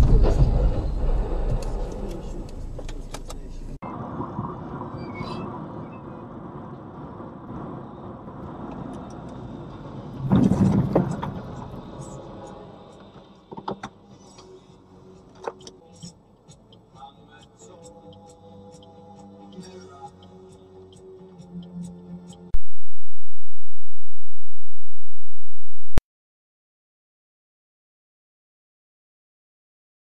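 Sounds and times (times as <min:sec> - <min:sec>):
car crash: 0:00.0 - 0:03.3, 0:10.1 - 0:11.9
car interior road noise: 0:00.0 - 0:13.3.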